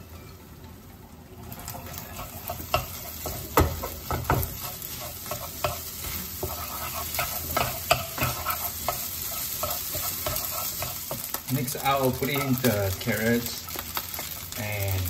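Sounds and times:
frying sizzle: 0.0s - 15.0s
spatula scraping and knocking pan: 1.5s - 12.8s.

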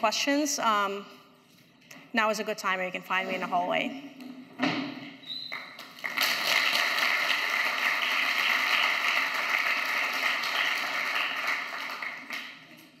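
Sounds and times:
audience applauding: 5.5s - 12.8s.

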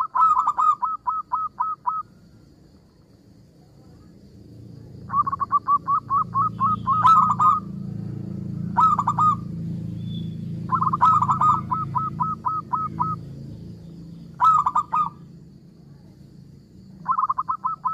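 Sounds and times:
dove cooing: 0.0s - 2.1s, 5.0s - 7.8s, 8.6s - 9.5s, 10.7s - 13.3s, 14.3s - 15.3s, 17.0s - 17.9s.

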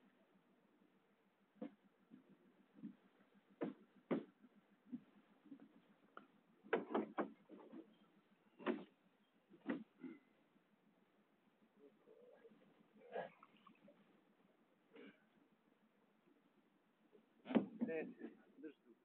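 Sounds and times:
knocks and clunks: 1.6s - 8.0s, 8.6s - 10.2s, 17.2s - 18.5s.

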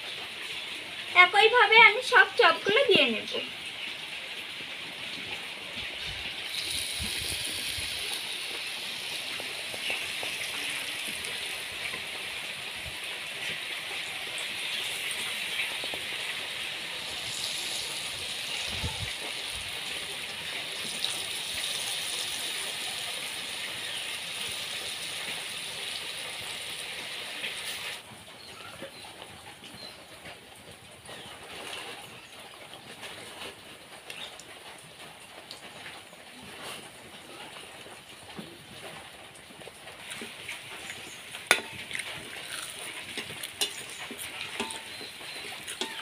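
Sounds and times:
slices sizzling in hot oil: 0.3s - 28.0s, 40.0s - 46.0s.

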